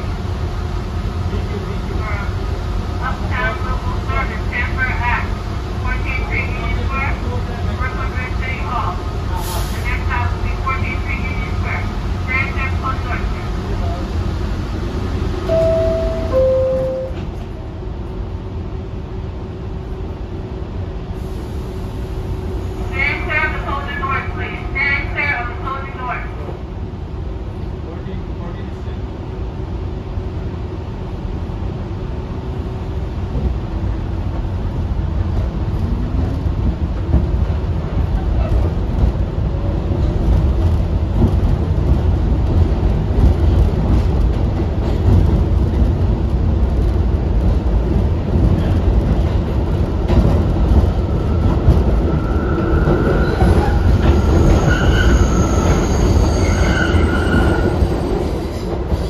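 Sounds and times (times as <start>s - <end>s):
subway train wheels rumbling: 0.0s - 59.0s
high-pitched wheel squeals: 54.2s - 58.0s.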